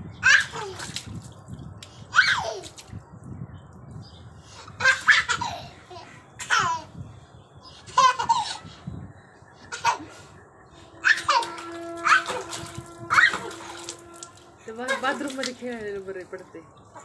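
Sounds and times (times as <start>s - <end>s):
toddler laughing and squealing: 2.1s - 2.8s, 4.8s - 6.9s, 7.8s - 8.7s, 11.0s - 13.9s.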